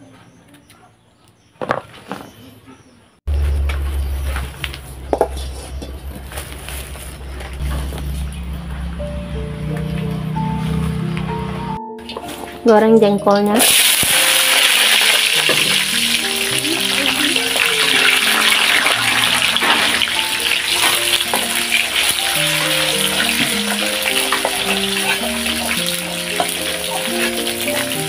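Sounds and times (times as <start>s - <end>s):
slices deep-frying in oil: 13.6s - 28.0s
spatula turning slices: 19.6s - 28.0s.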